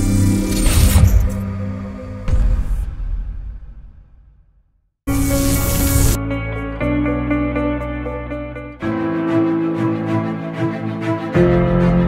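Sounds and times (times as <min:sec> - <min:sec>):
deep electronic hits: 0:00.5 - 0:05.3.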